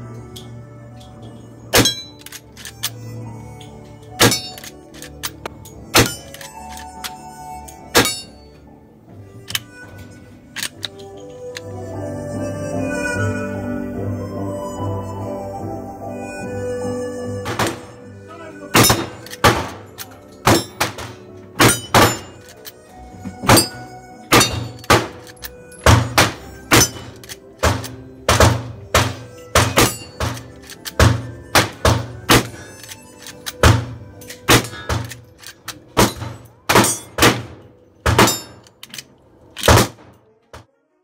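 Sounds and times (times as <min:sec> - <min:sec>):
steel targets clanging: 0:01.0 - 0:03.0, 0:03.6 - 0:08.6, 0:18.7 - 0:40.2
gunshots: 0:18.8 - 0:19.9, 0:23.5 - 0:25.3, 0:25.9 - 0:32.7, 0:33.6 - 0:35.2, 0:36.0 - 0:38.6, 0:39.6 - 0:40.2.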